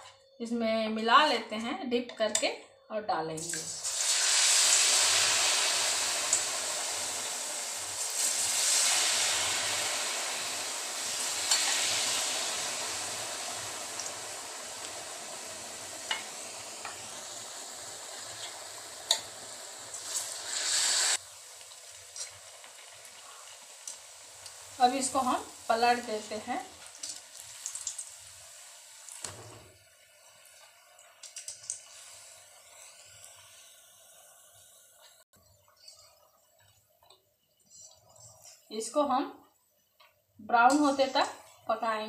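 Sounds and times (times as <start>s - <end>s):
deep-frying sizzle in hot oil: 3.4s - 37.1s, 40.6s - 42.0s.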